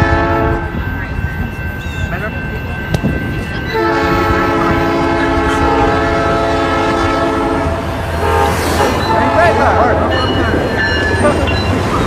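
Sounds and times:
train air horn blast: 0.0 - 0.7, 3.8 - 9.8
train rumbling: 0.0 - 12.0.

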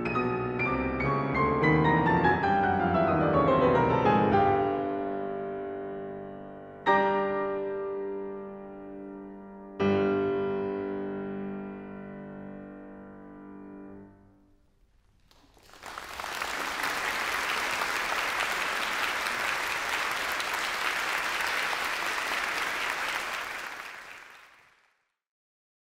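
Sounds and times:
audience applause: 15.1 - 25.0.

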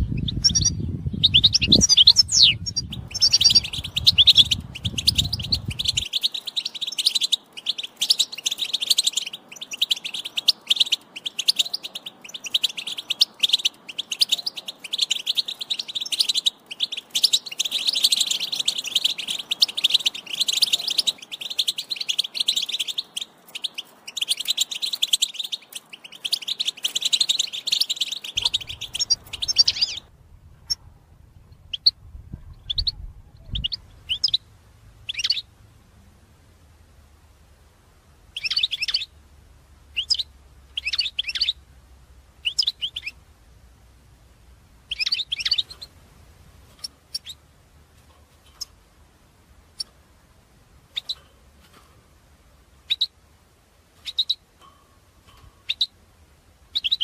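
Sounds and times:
finch twittering and trilling: 0.0 - 30.8, 31.4 - 34.4, 35.0 - 35.5, 38.3 - 39.1, 39.9 - 41.6, 42.4 - 43.2, 44.8 - 46.0, 46.7 - 47.5, 50.9 - 51.9, 52.8 - 53.2, 54.0 - 56.0, 56.7 - 57.0
low rumble: 28.4 - 37.3.

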